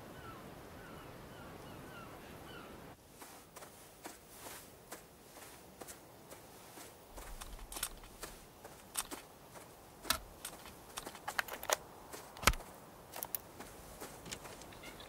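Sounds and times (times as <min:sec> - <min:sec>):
soft clicks and rustles: 0:03.2 - 0:15.0
small bird chirping: 0:14.0 - 0:15.0.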